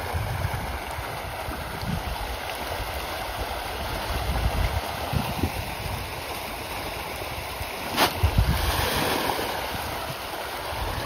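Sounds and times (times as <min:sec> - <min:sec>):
wind buffeting microphone: 0:00.0 - 0:06.3, 0:07.4 - 0:11.0
fish splashing in water: 0:06.5 - 0:11.0.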